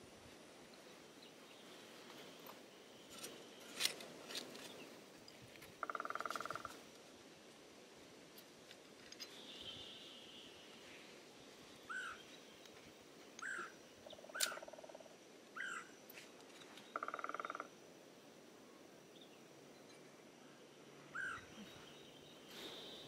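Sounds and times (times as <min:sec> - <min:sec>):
bird chirps: 0:13.4 - 0:14.8, 0:15.6 - 0:15.9.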